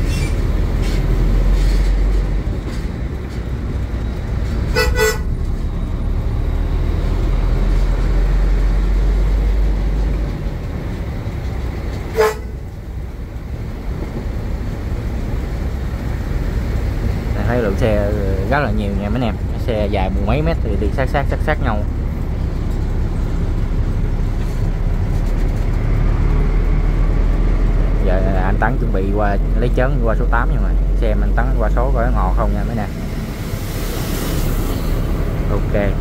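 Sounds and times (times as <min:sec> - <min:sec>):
diesel engine droning: 0:00.0 - 0:36.0
vehicle horn toots: 0:04.7 - 0:05.4, 0:12.1 - 0:12.6.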